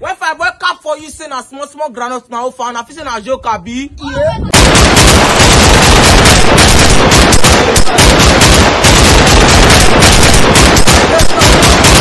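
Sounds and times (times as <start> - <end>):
machine-gun fire: 4.5 - 12.0.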